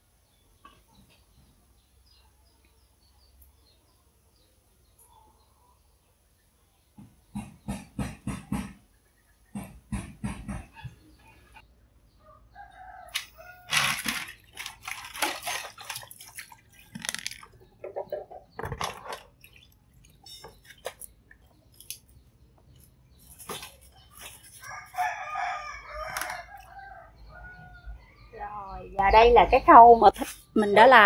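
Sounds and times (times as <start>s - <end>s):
water being handled: 13.2s - 26.9s
rooster crowing: 24.6s - 28.3s.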